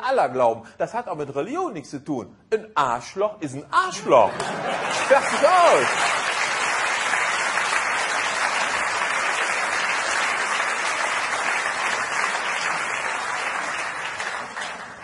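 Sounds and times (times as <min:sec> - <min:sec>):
crowd applauding: 0:04.4 - 0:15.0.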